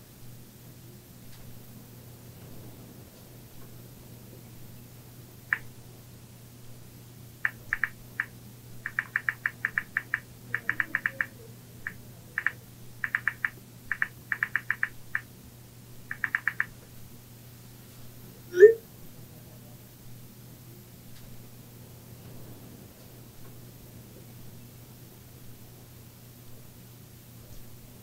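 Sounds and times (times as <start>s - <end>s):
phone keyboard clicks: 7.5s - 15.3s, 16.1s - 16.7s.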